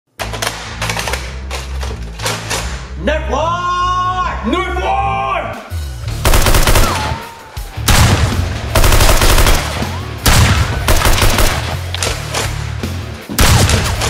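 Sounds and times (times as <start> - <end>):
automatic gunfire bursts: 6.2 - 7.2, 7.9 - 11.8.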